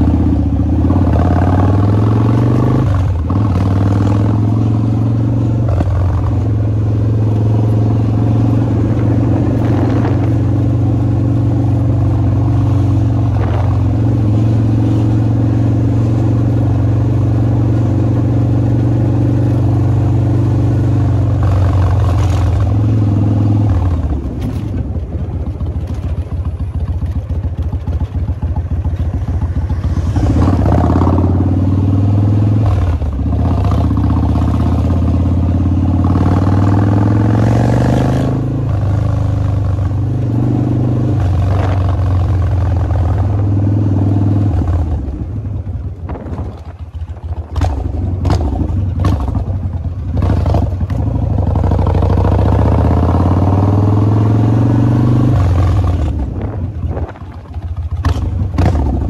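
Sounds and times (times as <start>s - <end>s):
motorcycle engine and exhaust: 0.0s - 59.0s
exhaust crackling off throttle: 21.4s - 34.8s, 44.4s - 59.0s.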